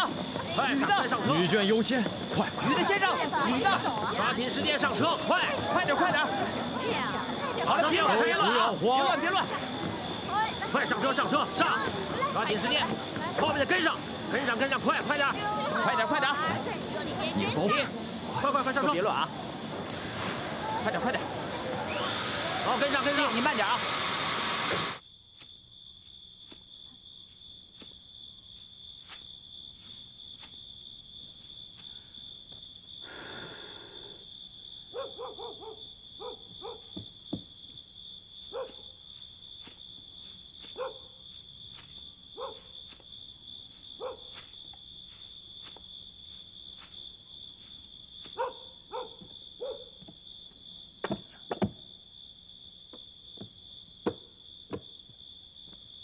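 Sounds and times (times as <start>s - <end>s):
insect chirring: 0.0s - 56.0s
sharp knocks: 51.0s - 51.8s, 53.4s - 54.9s.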